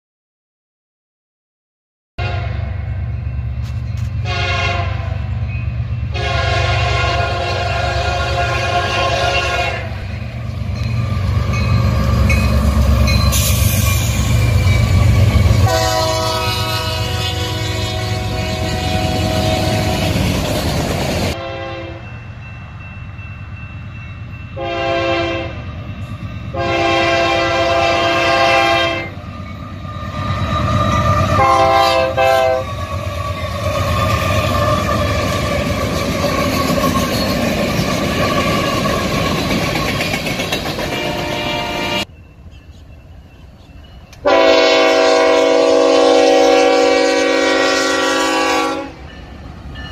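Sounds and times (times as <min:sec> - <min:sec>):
locomotive air horn blasts: 0:02.2 - 0:02.8, 0:04.2 - 0:05.3, 0:06.1 - 0:10.1, 0:15.4 - 0:20.3, 0:21.3 - 0:22.1, 0:24.6 - 0:25.6, 0:26.5 - 0:29.2, 0:31.2 - 0:32.8, 0:40.9 - 0:42.1, 0:44.2 - 0:49.1
freight train rumbling past: 0:02.2 - 0:49.9.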